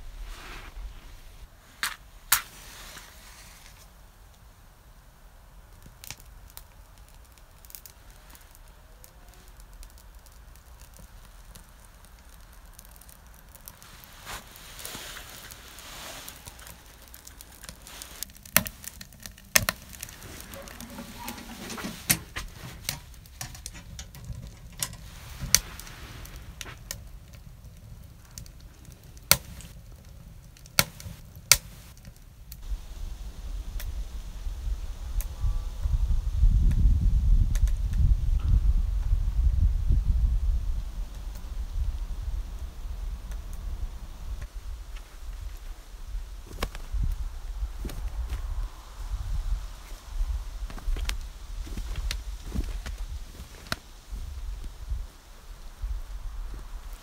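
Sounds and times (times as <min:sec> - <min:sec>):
fire crackling and popping: 0:00.0 - 0:57.0
fire flaring with rushing hiss: 0:00.0 - 0:57.0
wind rumble on microphone: 0:32.5 - 0:57.0.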